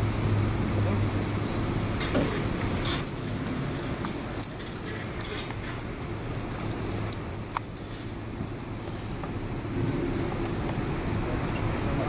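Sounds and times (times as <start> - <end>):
vehicle engines idling: 0.0 - 12.0
light metallic clicks and jingles: 2.6 - 8.0.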